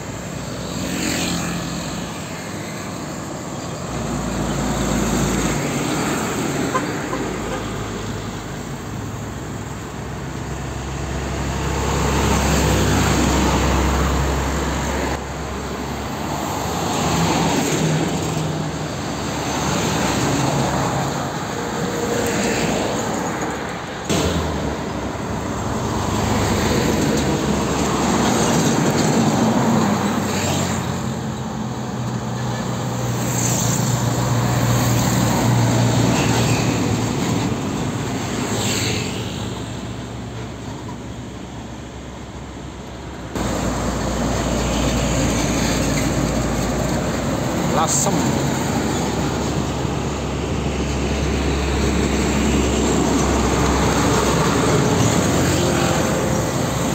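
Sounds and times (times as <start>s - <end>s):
diesel trucks passing: 0.0s - 56.9s.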